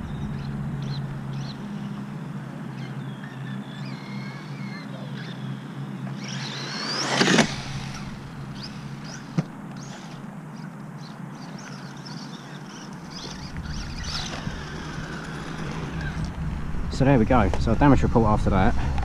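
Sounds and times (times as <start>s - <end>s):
electric motor whining: 0.0s - 16.9s
toy truck crashing: 6.2s - 8.1s.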